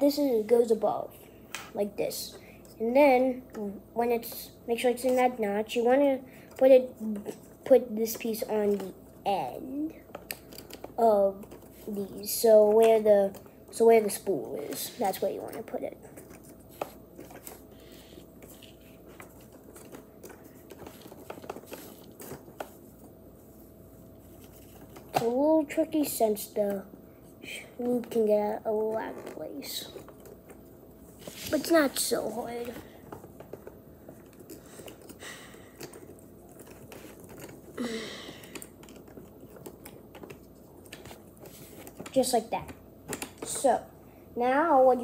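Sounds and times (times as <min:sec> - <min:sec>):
soft clicks and rustling of parts: 0:32.4 - 0:43.7.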